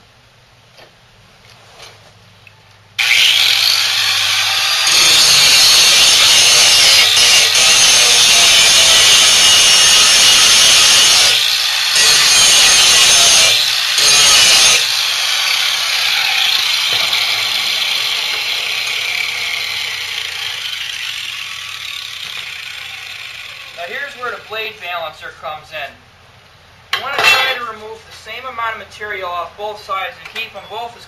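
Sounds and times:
angle grinder grinding steel: 3.0 - 24.8
grinder motor winding down: 3.0 - 24.8.

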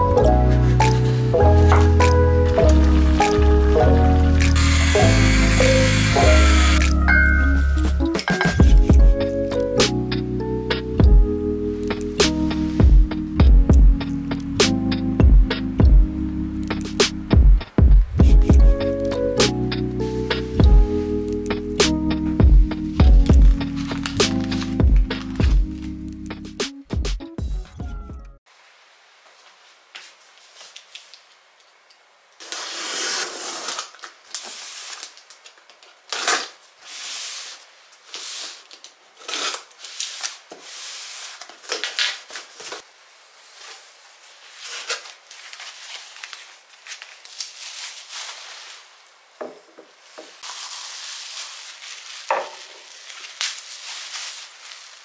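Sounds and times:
bubble wrap rustling: 0.0 - 7.1, 19.8 - 22.2, 22.8 - 26.2, 29.2 - 55.0
knocks and crinkles of packing: 0.4 - 3.7, 22.4 - 26.0, 44.5 - 55.0.

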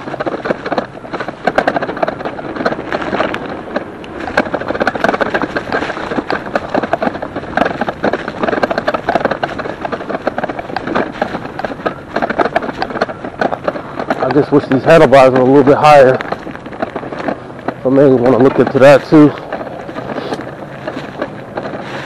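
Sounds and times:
bike frame rattling over grass: 0.0 - 22.0.

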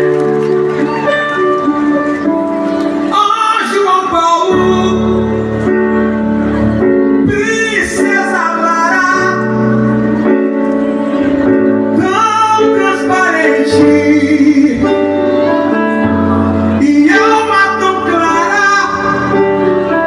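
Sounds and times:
person singing gospel: 3.1 - 5.5, 7.2 - 9.9, 11.9 - 15.8, 16.6 - 20.0.

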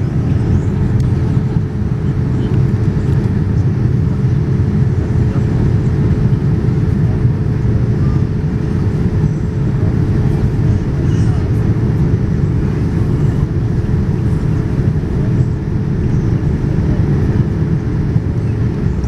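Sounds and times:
airplane cabin rumble: 0.0 - 19.0.

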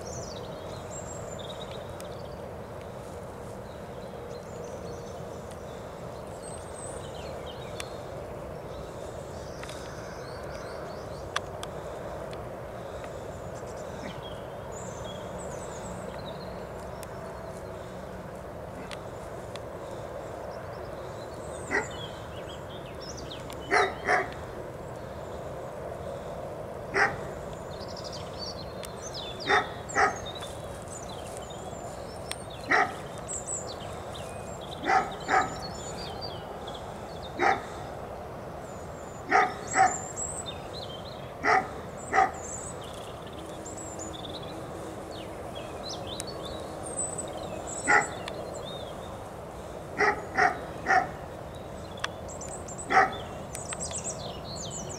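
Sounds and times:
steady background hiss: 0.0 - 54.9
dog barking: 21.7 - 21.9, 23.7 - 24.3, 26.9 - 27.3, 29.5 - 30.2, 32.7 - 33.0, 34.8 - 35.6, 37.4 - 37.7, 39.3 - 40.0, 41.4 - 42.4, 47.9 - 48.2, 50.0 - 51.2, 52.9 - 53.2.

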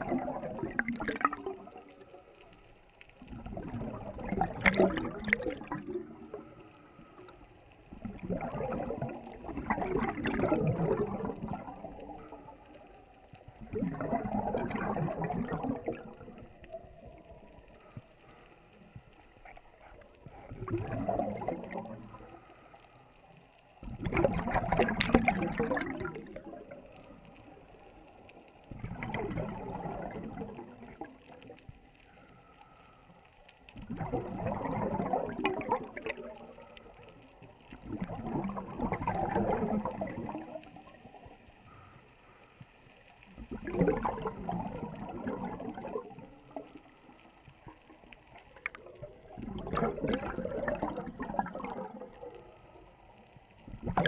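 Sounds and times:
underwater exhaust bubbles: 0.0 - 54.0
quiet inhalations: 6.0 - 8.1, 16.3 - 20.8, 21.6 - 23.9, 30.8 - 33.9, 36.0 - 37.7, 41.1 - 43.3.

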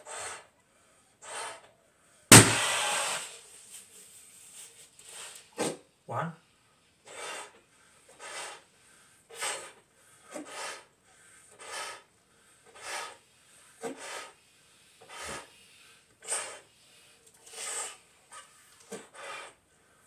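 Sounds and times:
breathy puffs inflating balloon: 7.0 - 20.0.

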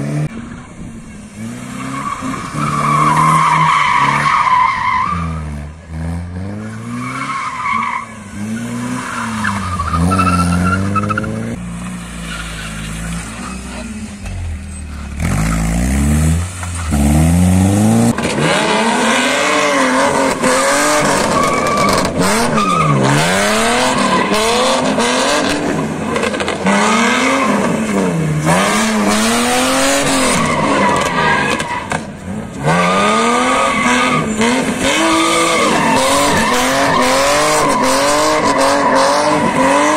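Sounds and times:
car engines revving: 0.0 - 39.9.

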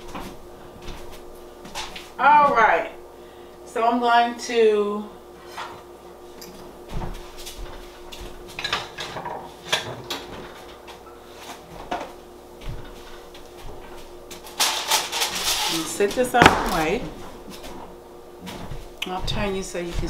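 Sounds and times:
steady low hum: 0.0 - 8.6, 15.1 - 20.0.

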